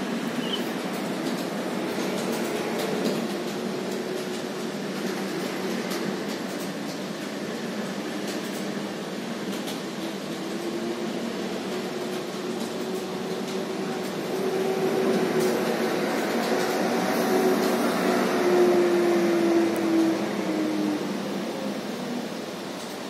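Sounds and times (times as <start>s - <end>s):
road traffic hum: 11.1s - 23.0s.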